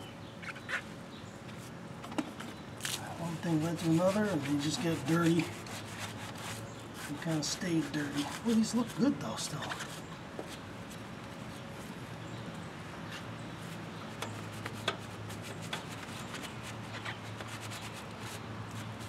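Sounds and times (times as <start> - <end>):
brush scrubbing wheel: 3.2 - 10.0.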